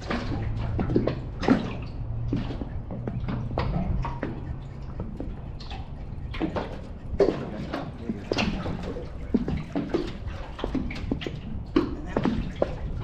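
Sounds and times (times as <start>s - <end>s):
small waves lapping against hull: 0.0s - 13.0s.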